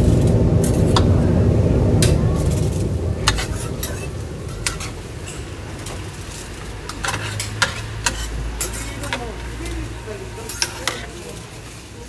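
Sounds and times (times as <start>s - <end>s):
metal tongs clinking on tray: 7.0s - 11.5s.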